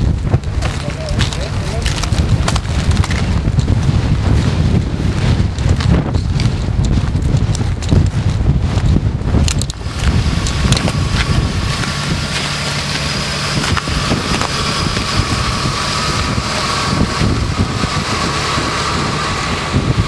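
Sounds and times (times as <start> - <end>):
wind buffeting microphone: 0.0 - 20.0
jeep engines idling: 9.5 - 20.0.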